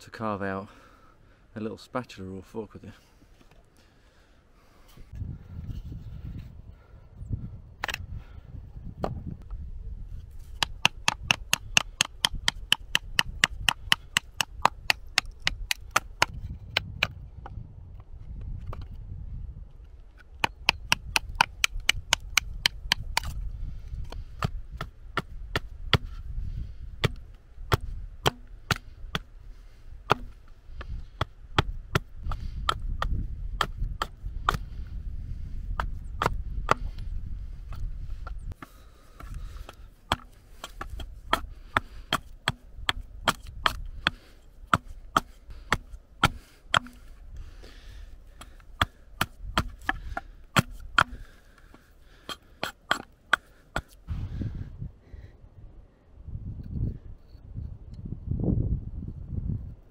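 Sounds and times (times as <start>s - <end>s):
hatchet chopping wood knocks: 10.4s - 17.1s, 20.4s - 23.4s, 24.1s - 26.2s, 27.0s - 29.3s, 30.0s - 34.8s, 35.7s - 37.0s, 38.6s - 47.1s, 48.3s - 51.3s, 52.2s - 54.0s.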